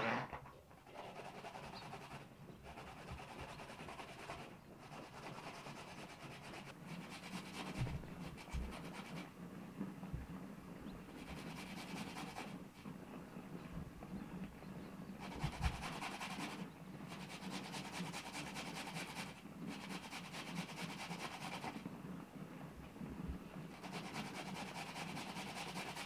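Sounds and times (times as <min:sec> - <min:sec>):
grating on metal box grater: 0:00.9 - 0:09.3, 0:11.1 - 0:12.6, 0:15.2 - 0:21.8, 0:23.8 - 0:26.0.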